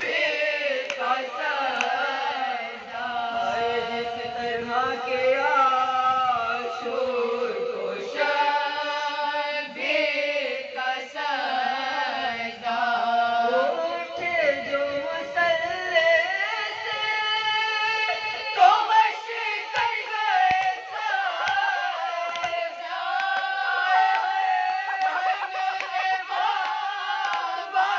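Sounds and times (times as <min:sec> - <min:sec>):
women singing unaccompanied elegy: 0:00.0 - 0:27.9.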